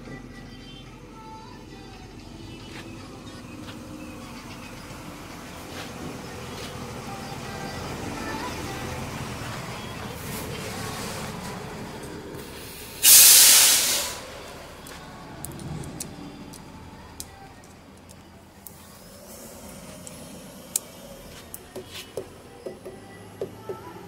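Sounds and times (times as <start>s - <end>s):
compressed air hiss: 12.4s - 14.5s.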